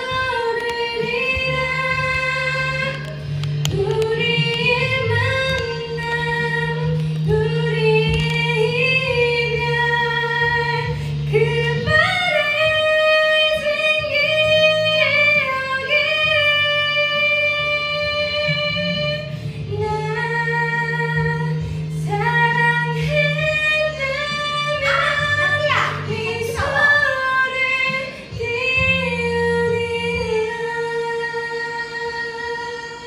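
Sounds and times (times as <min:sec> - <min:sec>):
woman singing into microphone: 0:00.0 - 0:33.0.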